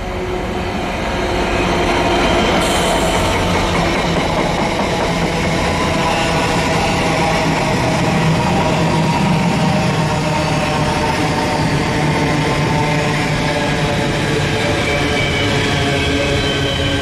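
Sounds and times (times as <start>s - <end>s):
diesel locomotive engine droning: 0.0s - 17.0s.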